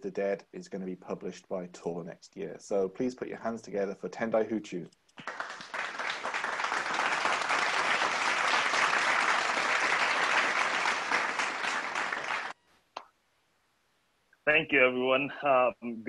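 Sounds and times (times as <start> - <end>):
crowd applause: 5.2 - 12.6.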